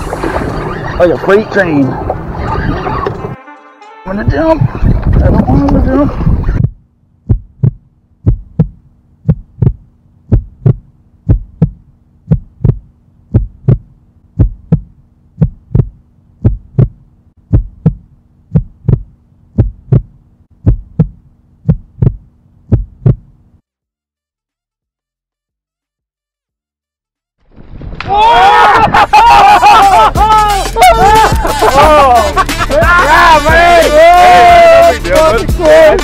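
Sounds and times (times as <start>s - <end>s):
heartbeat thumps: 4.3s - 23.4s.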